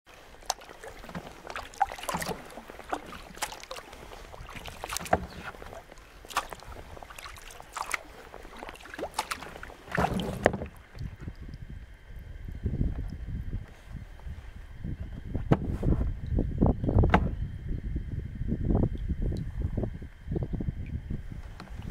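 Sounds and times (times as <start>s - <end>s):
paddle splashing water: 0.1s - 11.5s
water dripping from paddles: 0.3s - 10.0s.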